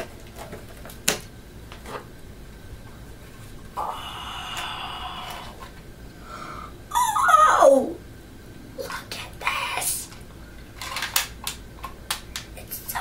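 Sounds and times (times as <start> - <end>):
boy exclaiming oh: 6.9 - 8.0.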